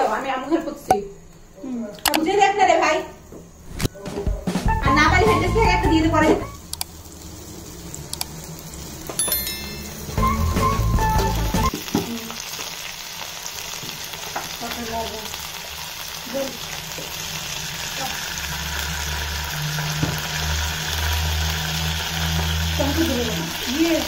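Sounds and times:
butter sizzling in a wok: 5.0 - 24.0.

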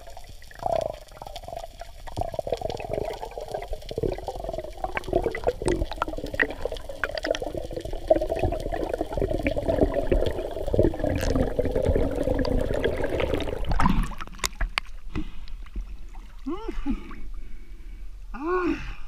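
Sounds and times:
underwater clicks and knocks: 10.8 - 15.9.

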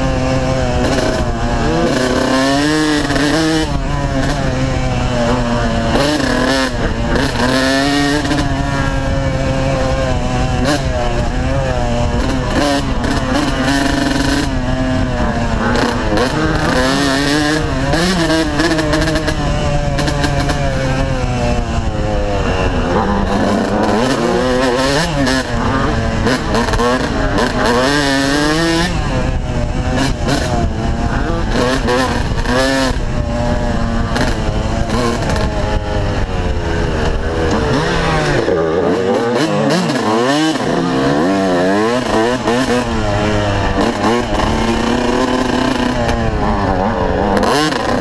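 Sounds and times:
dirt bike engine revving: 0.0 - 48.0.

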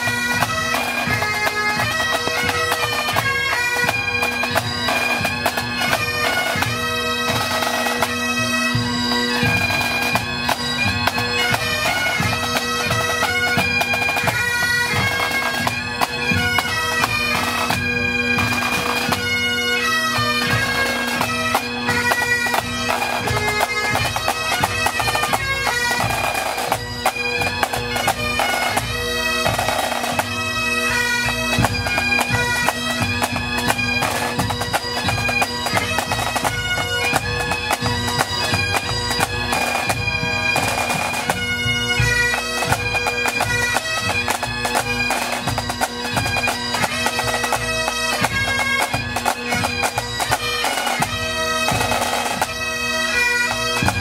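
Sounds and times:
bagpipes playing melody: 0.0 - 54.0
snare drums: 53.6 - 54.0.

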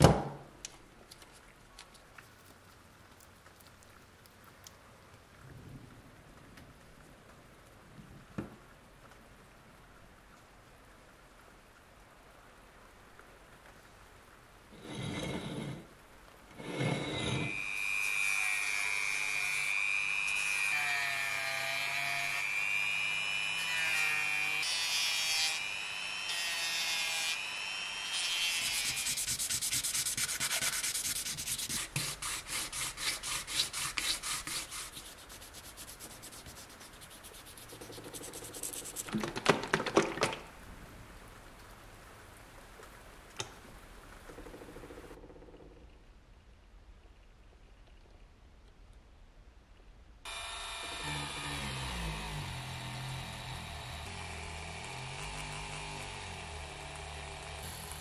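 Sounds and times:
sanding strokes: 28.1 - 39.2
power tool whining: 50.3 - 58.0.

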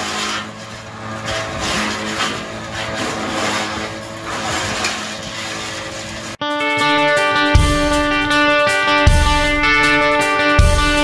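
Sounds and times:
wood chipper crackling: 0.0 - 6.4, 7.6 - 11.0
tractor engine droning: 0.0 - 11.0.

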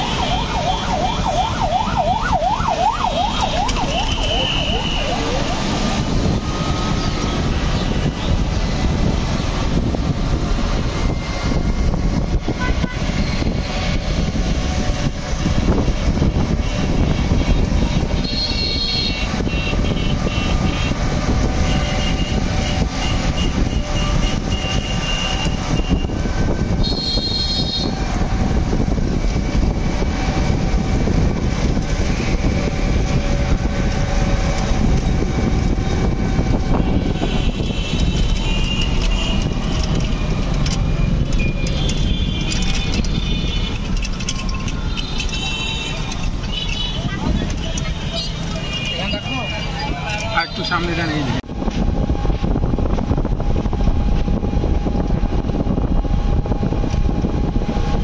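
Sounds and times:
road and wind rumble: 0.0 - 58.0
vehicle horn beeps: 12.6 - 13.1, 18.2 - 21.0, 21.6 - 26.2, 26.8 - 28.0, 36.7 - 39.6, 41.3 - 43.8, 44.9 - 50.8.

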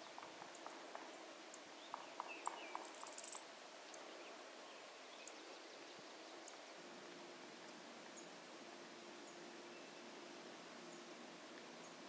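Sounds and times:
faint outdoor background: 0.0 - 12.0.

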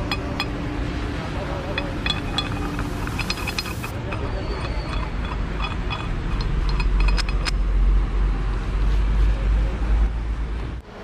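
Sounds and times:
metal shackle clinks: 0.0 - 0.6, 1.7 - 7.6.

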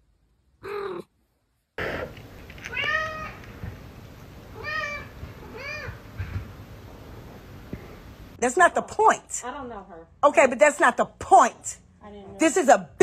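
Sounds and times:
cat meowing: 2.6 - 3.8, 4.5 - 6.5.

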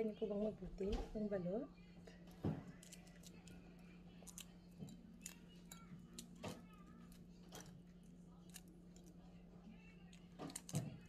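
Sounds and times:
steady low hum: 0.0 - 11.0
egg shell being peeled: 2.7 - 7.3.

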